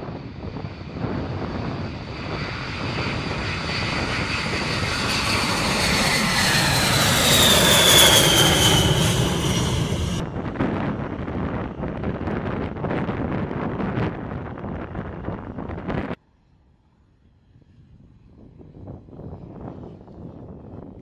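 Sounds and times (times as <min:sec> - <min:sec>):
high engine whine: 0:00.0 - 0:14.2
jet bomber taking off: 0:00.0 - 0:16.2.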